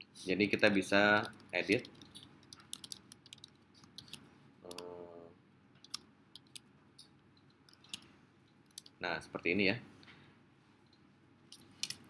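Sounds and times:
keyboard typing: 1.2 - 4.9, 5.8 - 6.7, 7.7 - 8.1, 8.7 - 9.0
person humming: 4.6 - 5.3.

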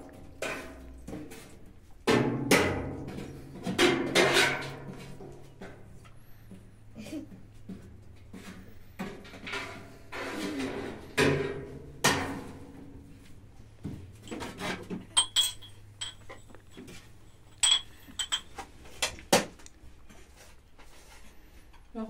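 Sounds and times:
glass and metal dishes clinking: 14.2 - 18.7.

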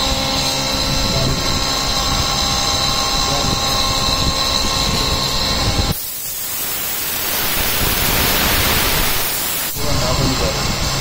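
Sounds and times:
milling machine whine: 0.0 - 11.0
coolant spray hiss: 5.9 - 11.0.

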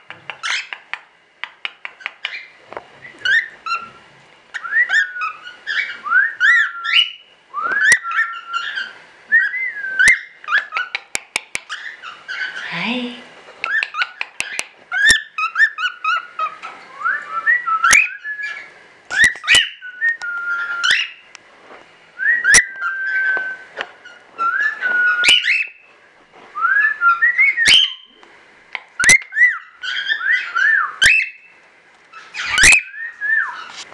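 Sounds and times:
cockatiel whistling: 2.2 - 11.0, 13.7 - 21.3, 22.2 - 25.8, 26.6 - 28.2, 29.0 - 31.5, 32.1 - 33.7
cockatiel sharp clicks: 13.6 - 14.7.

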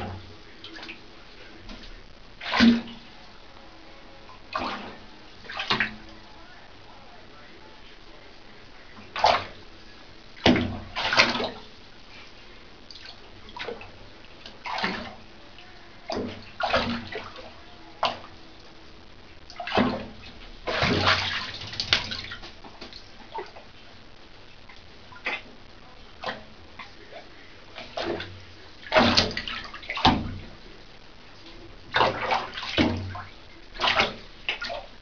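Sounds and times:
cat splashing in water: 1.6 - 3.1, 4.4 - 6.2, 9.0 - 9.6, 10.4 - 12.2, 12.9 - 18.4, 19.5 - 23.7, 26.2 - 30.7, 31.4 - 35.0.

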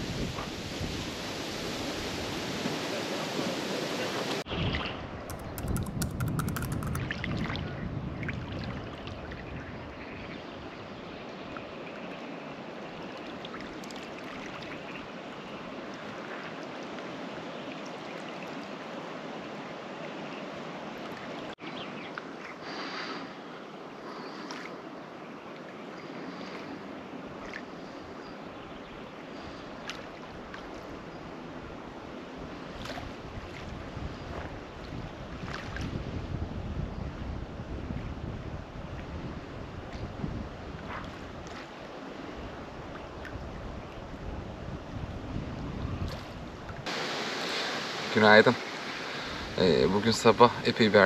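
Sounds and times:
high chirps and clicks: 5.3 - 7.0
rushing outdoor ambience: 46.8 - 51.0.

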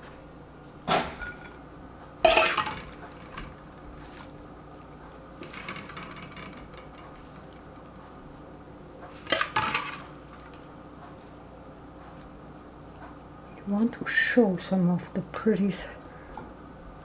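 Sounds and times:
steel bowl clattering: 2.2 - 3.4.

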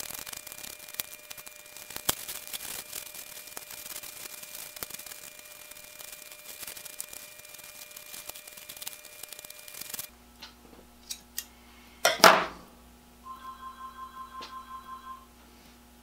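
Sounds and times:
hands rustling and clicking: 0.0 - 10.1
scissors snipping tape: 0.0 - 10.1.

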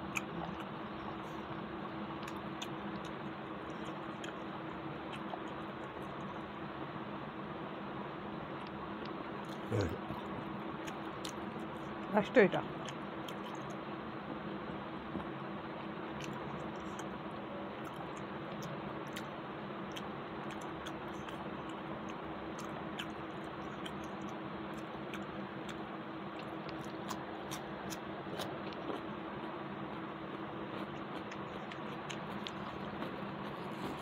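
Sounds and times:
steady hum: 0.0 - 34.0
person chewing: 0.1 - 0.7, 2.2 - 6.5, 9.4 - 12.0, 12.8 - 13.8, 16.1 - 34.0.

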